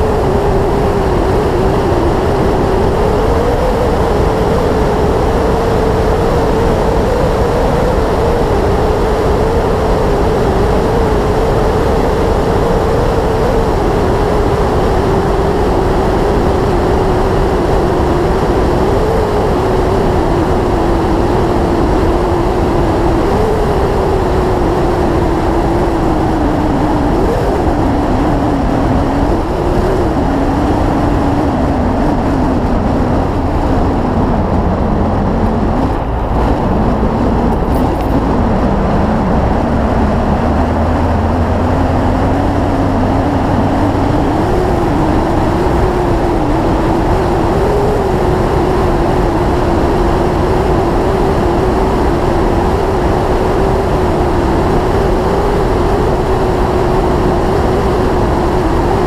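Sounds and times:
wind rushing noise: 0.0 - 59.0
motorcycle engine cruising: 21.1 - 55.1.

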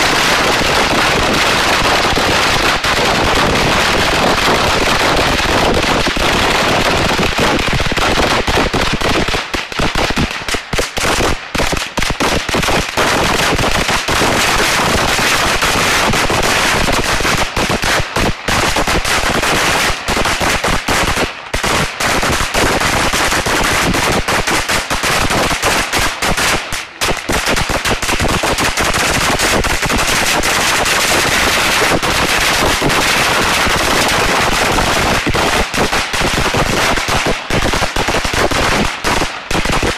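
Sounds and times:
firecrackers banging: 0.0 - 39.9.

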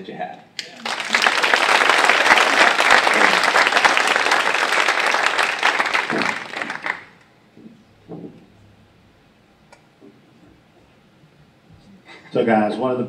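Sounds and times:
audience applauding: 0.6 - 7.3.

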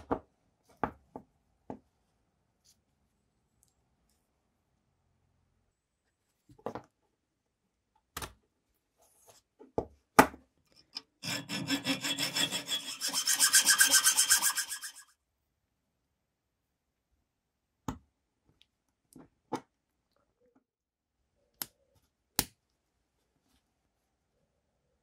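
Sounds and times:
hacksaw cutting metal: 11.0 - 15.0.

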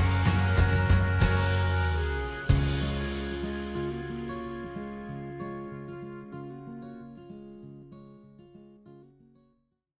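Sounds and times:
background music: 0.0 - 7.5.

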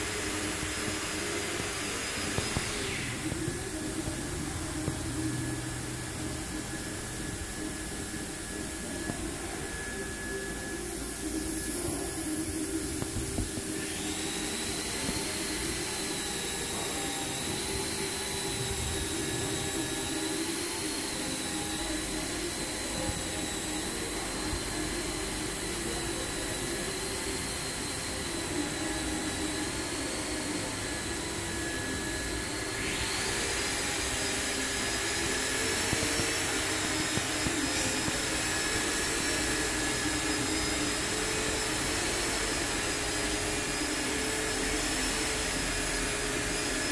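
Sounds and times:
whirring machinery with high whine: 0.0 - 46.9.

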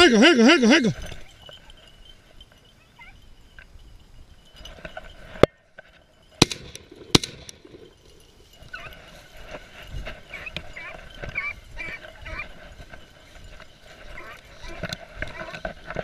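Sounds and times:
shotgun shots: 6.4 - 7.6
dogs baying: 8.2 - 9.6, 10.2 - 13.0, 13.8 - 16.0.

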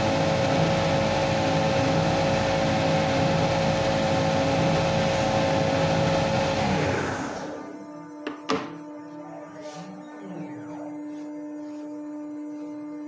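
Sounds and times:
belt sander running: 0.0 - 8.2.

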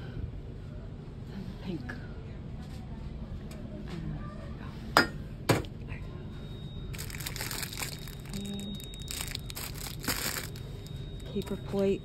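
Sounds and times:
plastic packs crinkling: 6.9 - 11.6.

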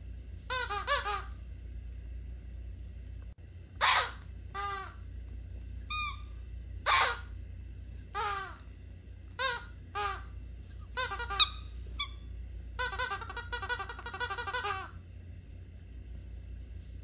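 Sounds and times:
low steady hum: 0.0 - 17.0
rubber squeaky toy squeaking: 3.8 - 5.0, 9.4 - 10.3, 11.0 - 12.2, 12.8 - 14.9.

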